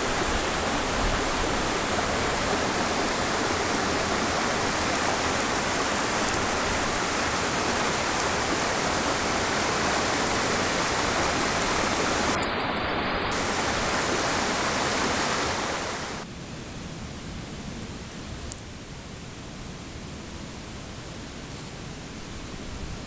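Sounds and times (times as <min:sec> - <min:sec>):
waterfall rushing: 0:00.0 - 0:16.3.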